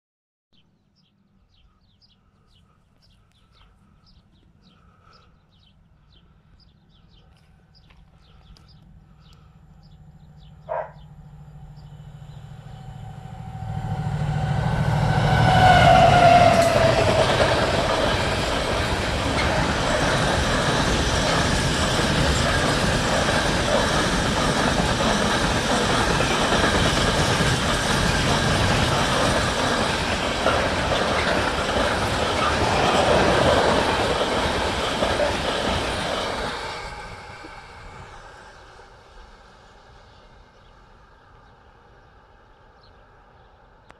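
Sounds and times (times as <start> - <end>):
locomotive engine rumble: 3.8 - 39.2
wagon wheels clattering on rails: 16.7 - 36.4.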